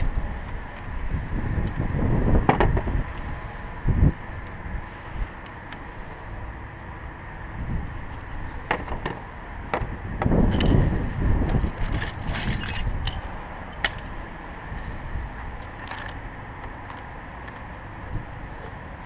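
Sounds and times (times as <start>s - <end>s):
wind noise on microphone: 0.0s - 5.6s, 7.4s - 16.4s, 17.9s - 19.0s
metal hand tools clinking: 11.8s - 13.2s.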